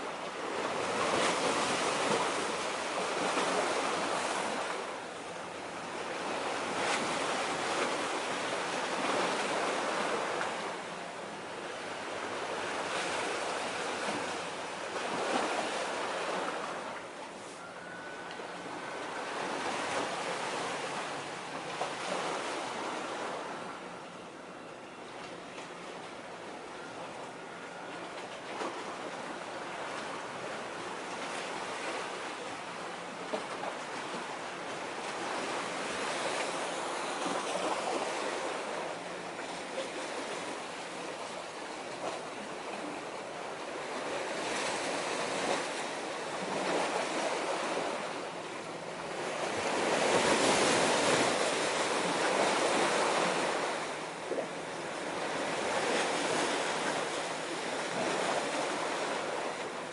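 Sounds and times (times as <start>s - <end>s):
sea waves washing against concrete: 28.6s - 59.9s.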